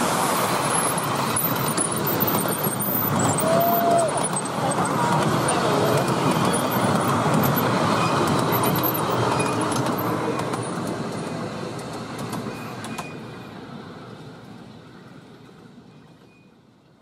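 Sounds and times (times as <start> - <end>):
miniature train coaches rumbling on rails: 0.0 - 17.0
light rail clicks: 5.1 - 13.4.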